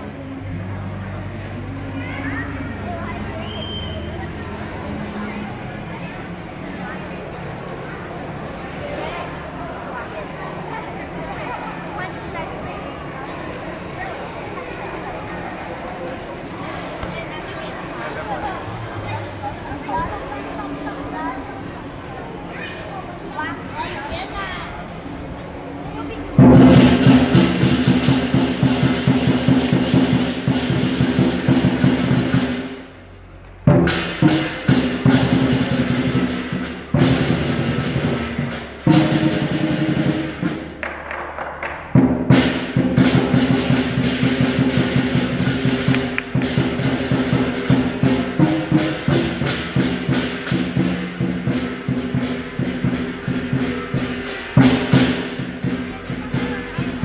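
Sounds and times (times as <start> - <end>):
percussion band drums cymbals gong: 26.0 - 57.0.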